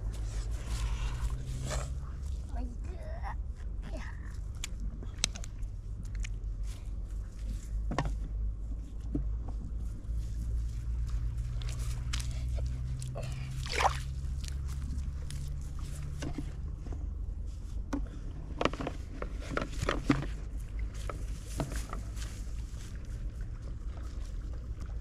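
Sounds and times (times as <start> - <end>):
steady low rumble: 0.0 - 25.0
water splashing and sloshing: 8.9 - 17.0, 18.6 - 25.0.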